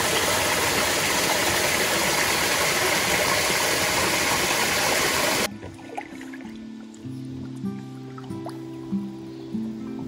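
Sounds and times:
waterfall rushing: 0.0 - 5.5.

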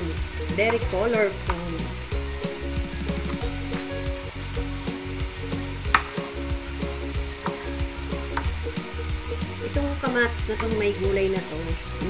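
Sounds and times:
vegetables sizzling in a frying pan: 0.0 - 12.0
crackles and pop from pan: 0.3 - 11.0.

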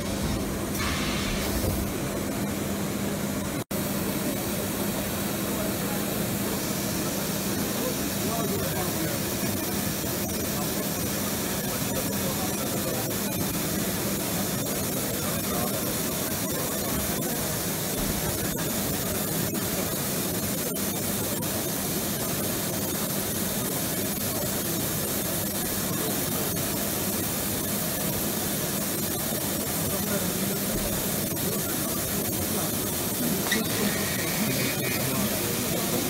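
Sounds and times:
packaging machinery hiss and hum: 0.0 - 36.0
indistinct background voices: 30.0 - 36.0.

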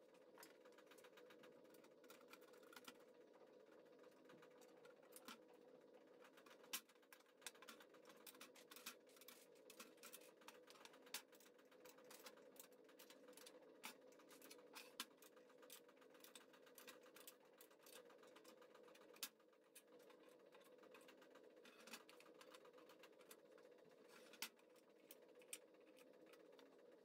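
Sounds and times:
faint steady hum: 0.0 - 27.0.

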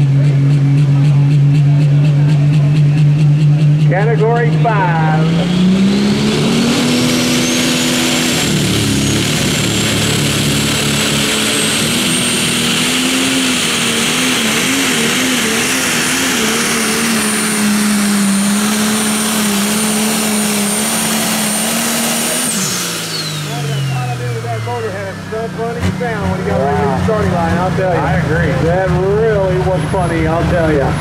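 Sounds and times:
tractor diesel engine drone: 0.0 - 31.0
turbo whistle: 5.9 - 10.3.

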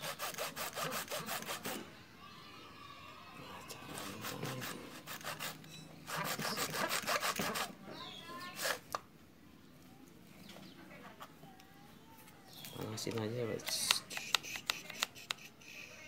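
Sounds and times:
hacksaw sawing through plastic: 0.0 - 1.8, 3.9 - 7.7.

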